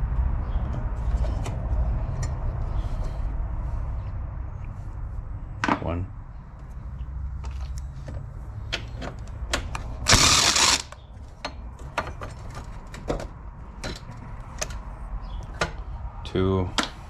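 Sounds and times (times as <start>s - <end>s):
hand ratchet clicking: 10.0s - 11.0s.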